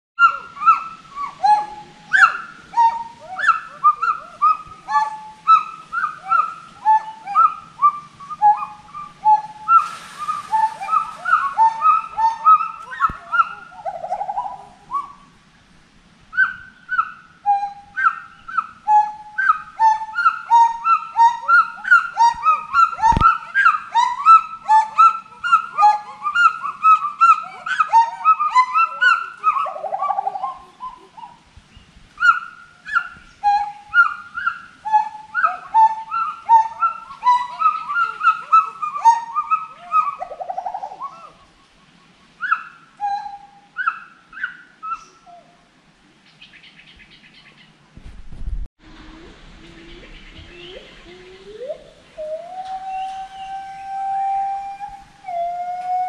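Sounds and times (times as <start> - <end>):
gibbons whooping: 0.2 - 15.1, 16.4 - 31.3, 32.2 - 41.5, 48.9 - 56.0.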